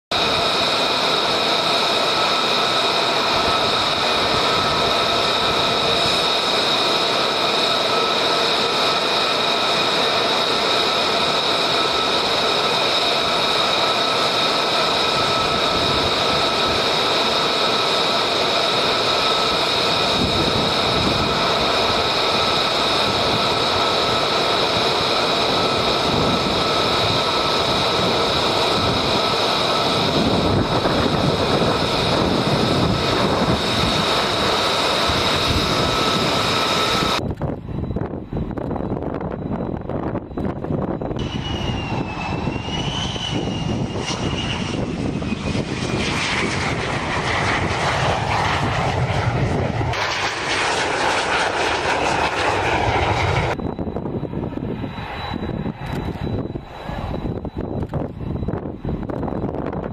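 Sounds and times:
jet engine high-pitched whine: 0:00.1 - 0:59.9
deep rumble: 0:37.2 - 0:59.9.

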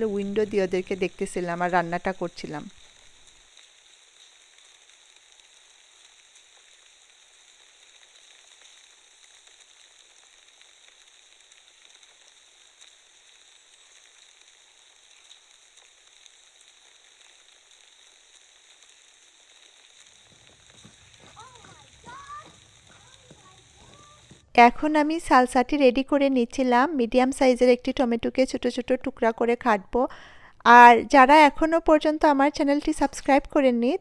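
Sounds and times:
light crackle: 0:00.0 - 0:26.1
faint steady hiss: 0:00.0 - 0:34.0.

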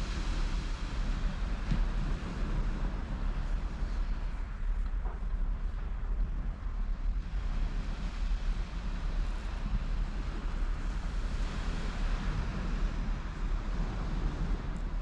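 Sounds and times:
surf washing: 0:00.0 - 0:15.0
wind buffeting microphone: 0:00.0 - 0:15.0.

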